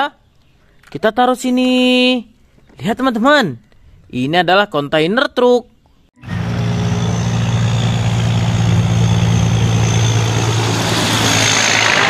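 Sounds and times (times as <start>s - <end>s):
road and tyre noise: 6.2s - 12.0s
truck diesel engine droning: 6.2s - 12.0s.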